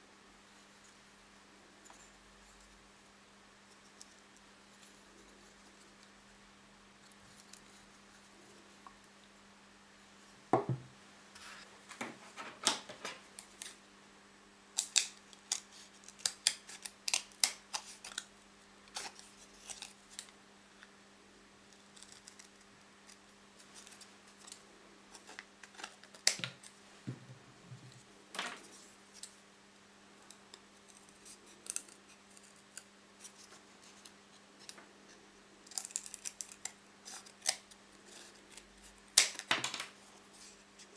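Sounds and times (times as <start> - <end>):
knocks against wooden table: 10.6 - 10.9.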